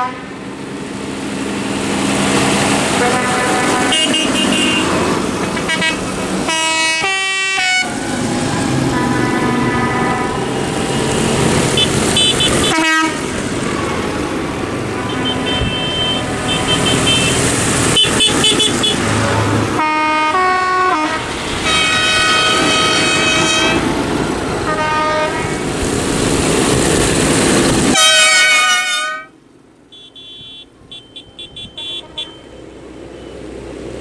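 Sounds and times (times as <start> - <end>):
tractor horns tooting: 0.0 - 0.3, 2.8 - 7.9, 8.9 - 13.4, 14.8 - 23.9, 24.6 - 25.6, 27.9 - 32.7
diesel tractors driving past: 0.0 - 34.0.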